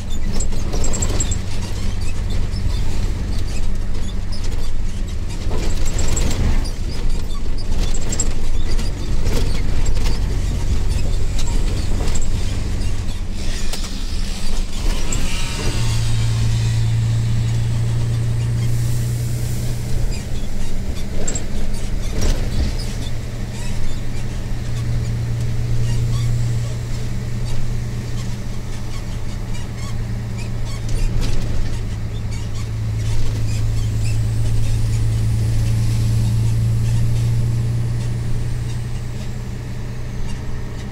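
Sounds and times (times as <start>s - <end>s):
road rumble: 0.0s - 40.9s
truck diesel engine drone: 0.0s - 40.9s
brief squeal: 5.6s - 25.2s.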